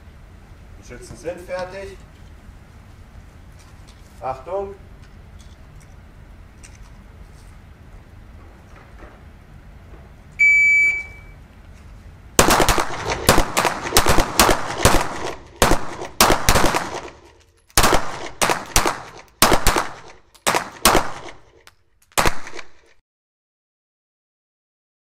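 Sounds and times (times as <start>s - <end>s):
short electronic beep: 10.4s - 11.4s
pistol shots echoing indoors: 12.4s - 17.2s, 17.8s - 21.4s.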